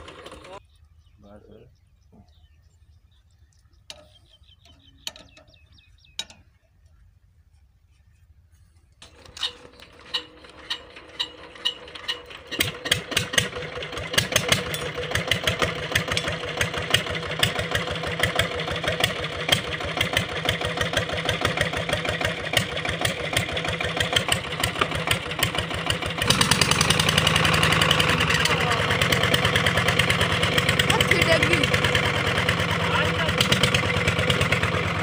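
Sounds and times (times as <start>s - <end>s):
diesel engine starting and running: 0.0s - 0.7s, 9.0s - 35.0s.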